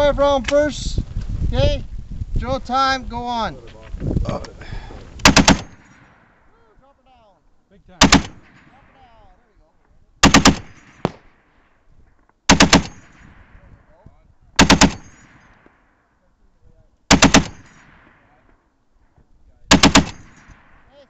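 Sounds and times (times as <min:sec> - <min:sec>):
heavy machine gun bursts: 0:05.2 - 0:06.1, 0:14.6 - 0:15.4, 0:17.1 - 0:17.8, 0:19.7 - 0:20.4.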